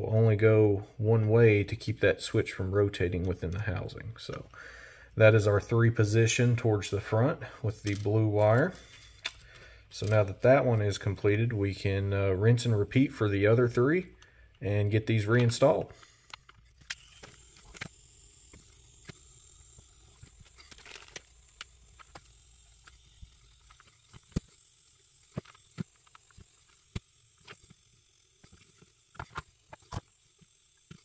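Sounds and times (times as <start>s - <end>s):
faint high whine: 0.0s - 31.0s
small tools clicking and tapping: 15.3s - 31.0s.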